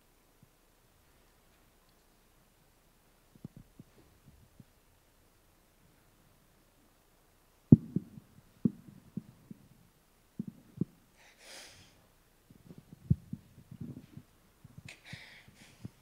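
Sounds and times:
microphone handling thumps: 7.7s - 9.8s, 10.4s - 11.0s, 12.5s - 14.9s
breath into microphone: 15.0s - 16.0s.

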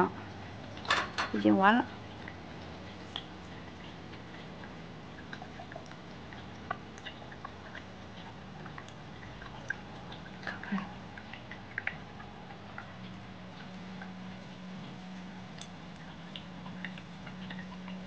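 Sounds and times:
low steady hum: 0.0s - 18.0s
small clicks and ticks: 2.1s - 14.4s.

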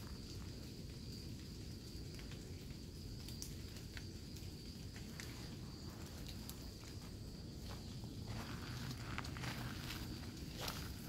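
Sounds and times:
footsteps rumble: 4.9s - 11.0s.

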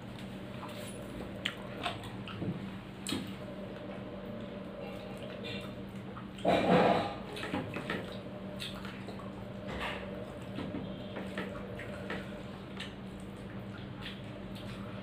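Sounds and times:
steady low hum: 0.0s - 15.0s
wet chewing and mouth smacks: 1.4s - 4.4s, 7.3s - 9.4s, 12.7s - 15.0s.

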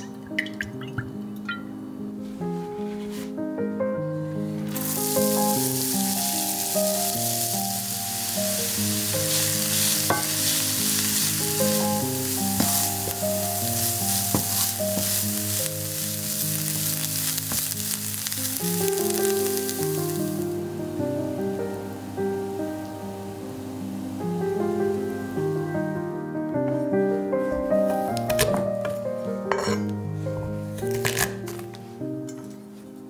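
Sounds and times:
background music: 0.0s - 33.0s
onion sizzling in hot oil: 4.6s - 20.8s, 21.4s - 25.6s.

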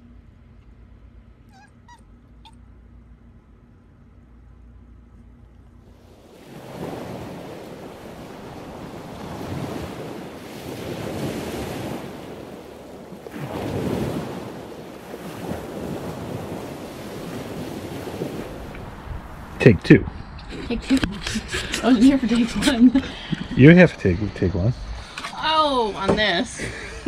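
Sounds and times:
faint low hum: 0.0s - 6.2s
ocean waves washing in: 5.8s - 27.0s.

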